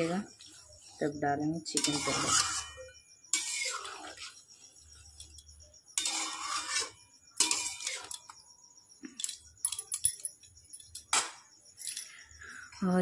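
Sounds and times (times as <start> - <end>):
metal spoon scraping a pot: 0.0 - 8.4
spoon clinking: 9.2 - 11.1.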